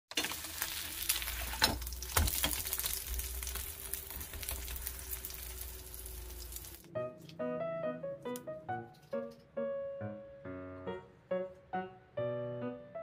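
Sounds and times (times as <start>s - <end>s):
pancake sizzling in oil: 0.1s - 6.9s.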